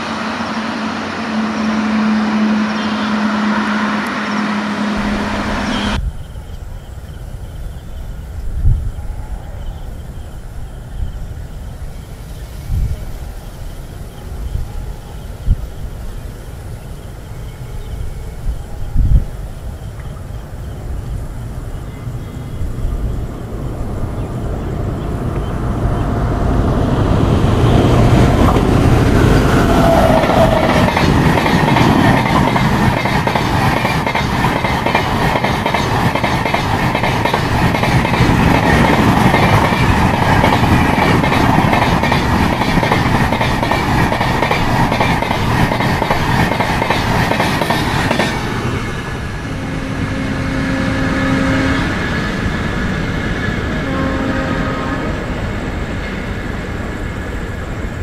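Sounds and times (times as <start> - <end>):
passing train rushing: 0.0 - 58.0
wheels clattering over rails: 27.3 - 48.9.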